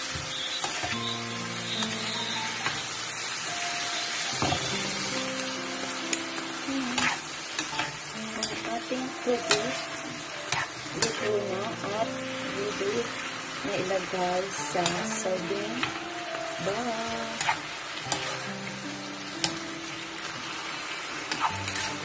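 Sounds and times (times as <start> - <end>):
food sizzling in frying pan: 0.0 - 22.0
spatula scraping and tapping pan: 21.3 - 22.0.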